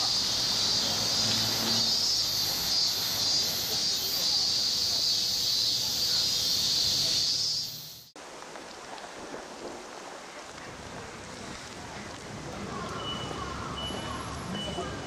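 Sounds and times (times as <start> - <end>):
cicadas droning: 0.0 - 8.2.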